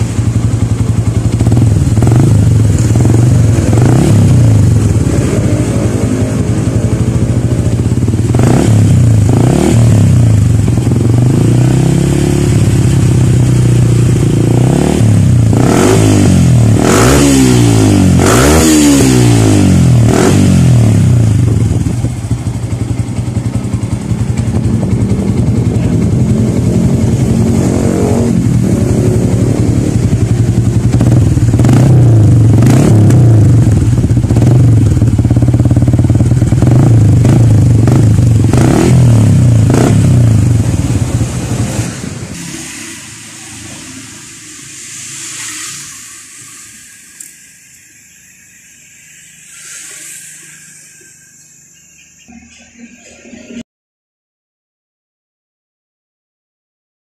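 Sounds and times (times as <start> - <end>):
motorcycle engine revving and idling: 0.0 - 53.6.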